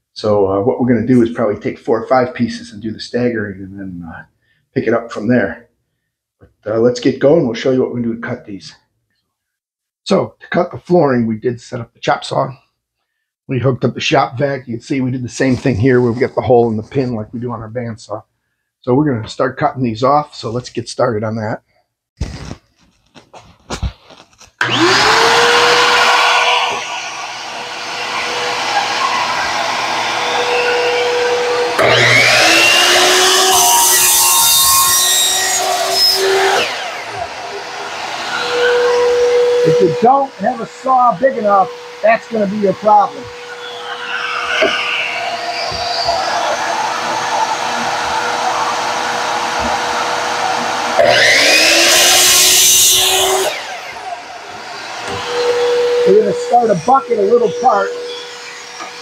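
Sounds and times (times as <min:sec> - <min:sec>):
miter saw cutting plank: 0:24.6 - 0:59.0
shop vac motor running: 0:24.6 - 0:59.0.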